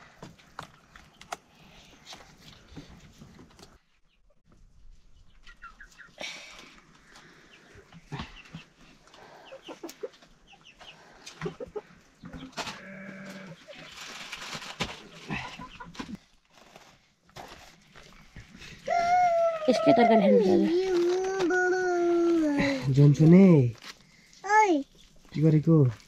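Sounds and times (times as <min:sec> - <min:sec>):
chickens clucking: 0:05.2 - 0:06.2, 0:07.4 - 0:14.1, 0:15.1 - 0:16.2
rustling: 0:12.4 - 0:26.0
long bleat: 0:12.8 - 0:13.6.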